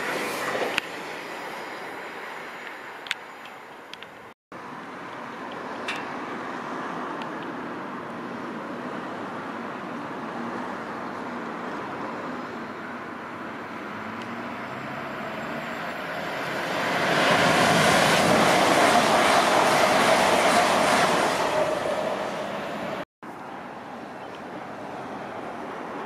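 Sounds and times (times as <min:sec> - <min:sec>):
train rushing past: 0:14.4 - 0:23.0.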